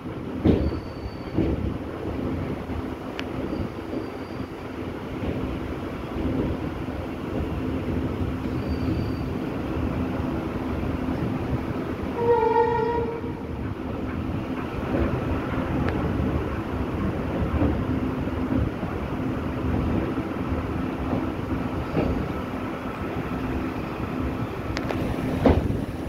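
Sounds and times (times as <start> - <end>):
train wheels rumbling on track: 0.0 - 26.0
train horn blast: 12.2 - 13.5.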